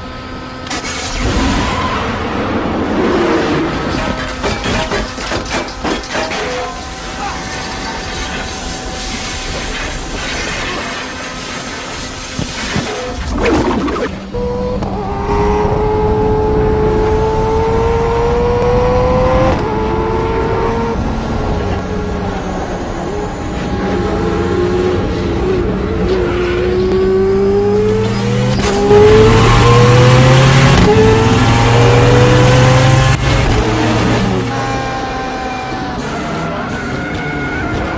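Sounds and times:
race car engine accelerating: 12.9 - 37.9.

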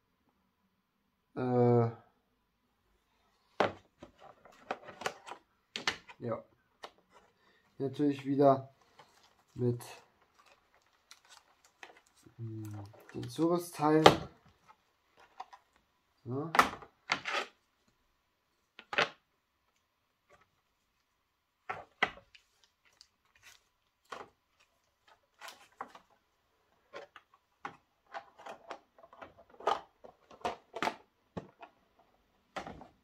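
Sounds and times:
plastic packaging crinkling: 8.8 - 13.8.

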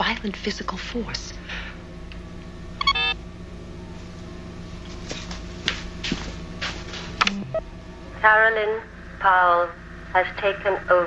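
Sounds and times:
steady electronic hum: 0.0 - 11.0
low electronic tone: 2.7 - 4.7, 7.2 - 8.2
electronic beep: 7.2 - 7.7.

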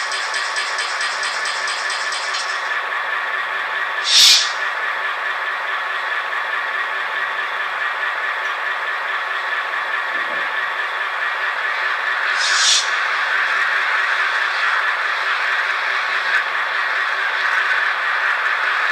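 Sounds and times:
model locomotive diesel idle: 0.0 - 18.9
short sharp hiss: 4.0 - 4.6, 12.3 - 12.9.

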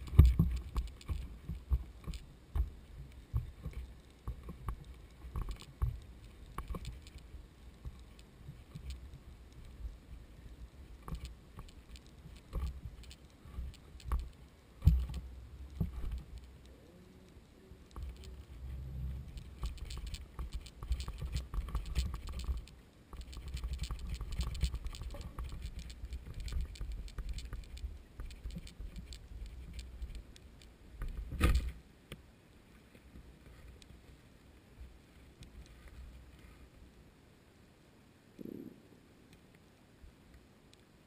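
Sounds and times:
underwater rumble of moving water: 0.0 - 22.7
small clicks and ticks: 0.0 - 37.0, 39.3 - 41.0.

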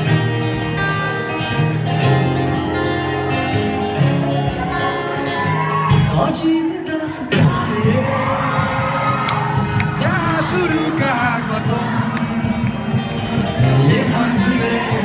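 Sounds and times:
acoustic guitars playing chords: 0.0 - 15.0
person singing: 4.7 - 9.2, 10.0 - 12.9, 13.5 - 15.0.

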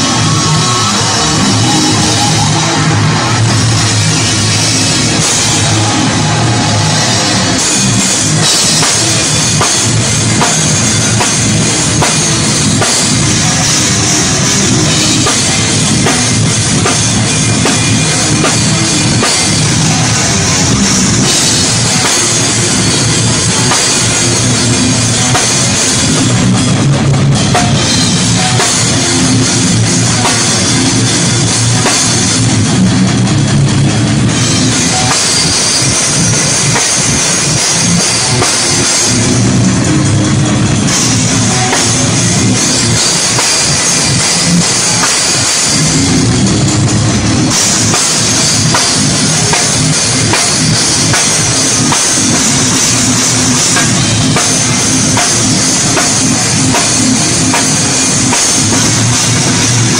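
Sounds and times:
distorted guitars and bass: 0.0 - 59.9
fast heavy drumming: 0.0 - 59.9.

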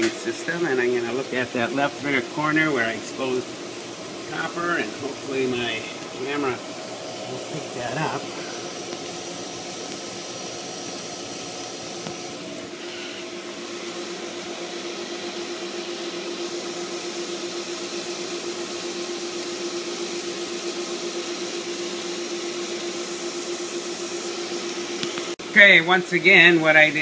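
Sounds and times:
pool pump humming and hissing: 0.0 - 27.0.

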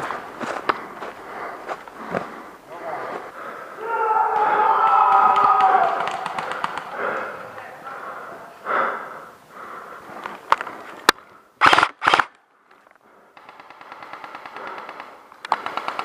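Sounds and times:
airsoft gun automatic bursts: 11.6 - 12.3, 13.4 - 16.0
airsoft gun single shots: 11.6 - 12.3
faint rapid automatic fire: 11.6 - 12.3, 13.4 - 16.0.

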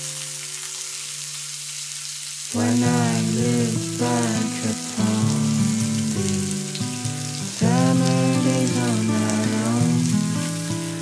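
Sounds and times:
food sizzling on a grill: 0.0 - 11.0
background music: 2.6 - 11.0.

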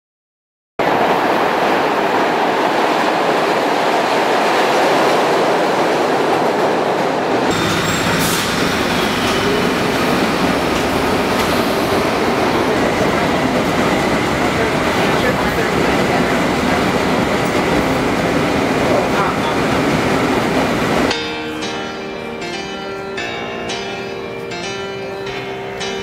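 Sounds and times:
subway train wheels on rails: 0.8 - 26.0.

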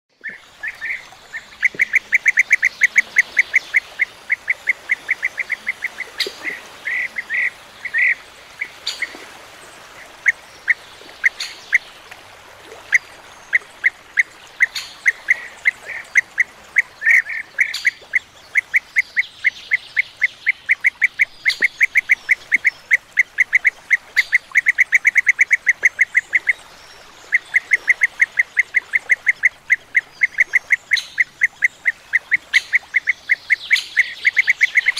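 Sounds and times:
birds calling with rolling notes: 0.2 - 9.2.

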